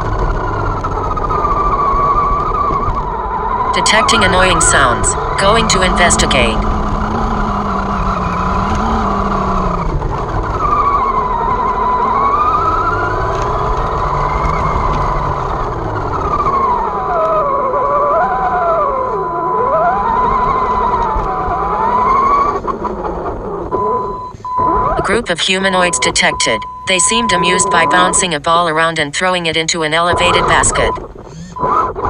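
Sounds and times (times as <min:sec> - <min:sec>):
electric motor whining: 0:00.0 - 0:25.2, 0:29.5 - 0:32.0
tyre and chassis noise: 0:00.0 - 0:32.0
steady high-pitched tone: 0:03.8 - 0:06.7, 0:24.8 - 0:31.7.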